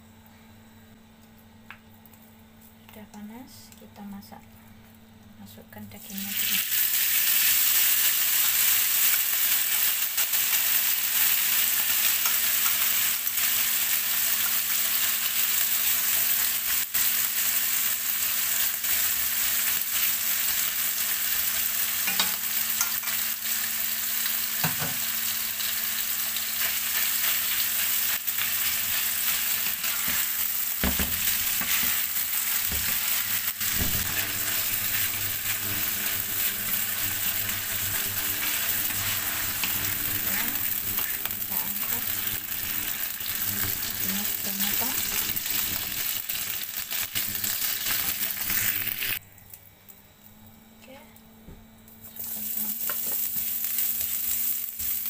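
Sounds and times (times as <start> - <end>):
meat sizzling in oil: 6.0 - 49.2, 52.1 - 55.0
utensils knocking against pan: 22.0 - 22.9.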